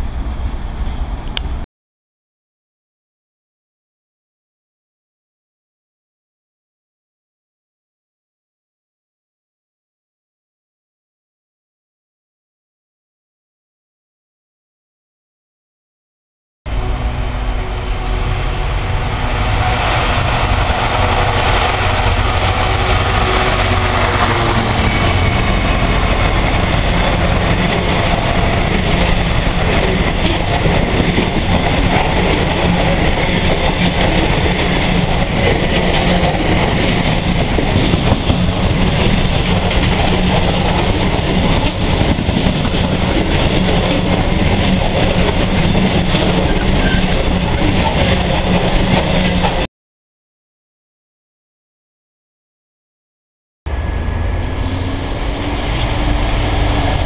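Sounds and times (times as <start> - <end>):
train wheels rumbling on rail: 0.0 - 1.6, 16.7 - 49.7, 53.7 - 57.0
locomotive engine tone: 16.7 - 49.6, 53.7 - 57.0.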